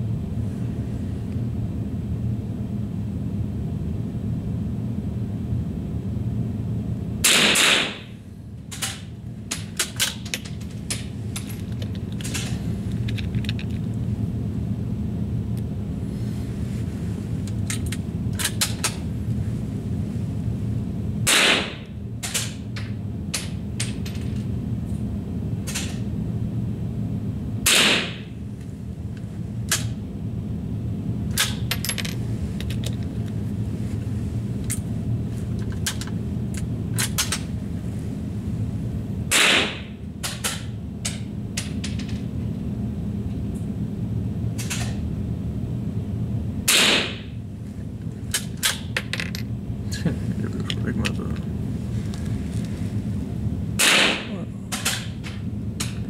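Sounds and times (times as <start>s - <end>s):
steady low hum: 0.0s - 56.0s
rifle shots: 7.3s - 8.0s, 21.3s - 21.8s, 27.7s - 28.2s, 53.8s - 54.3s.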